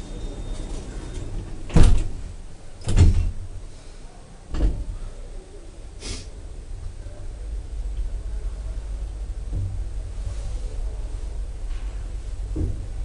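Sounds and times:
elevator door thumps: 0.0s - 3.6s, 4.5s - 5.0s, 9.3s - 10.2s, 11.4s - 13.0s
low hum: 4.8s - 13.0s.

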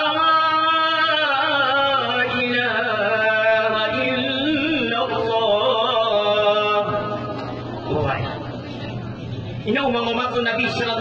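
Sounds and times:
man chanting into a microphone: 0.0s - 7.2s.

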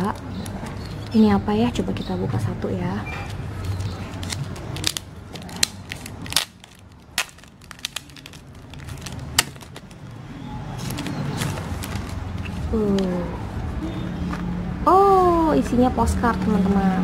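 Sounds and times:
plastic wrap crinkling: 3.2s - 13.1s.

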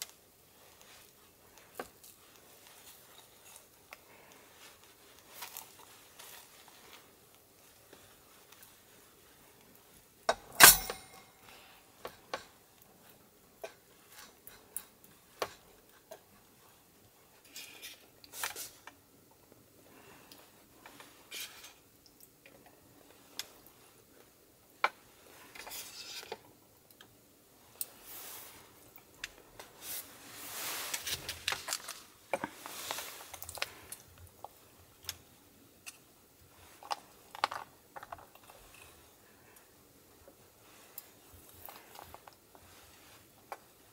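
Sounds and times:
plastic containers rustling: 29.4s - 34.6s.

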